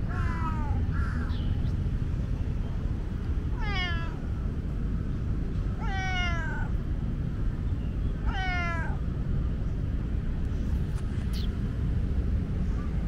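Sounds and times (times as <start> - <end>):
cat meowing: 0.0 - 1.0, 3.5 - 4.2, 5.8 - 6.7, 8.2 - 9.0.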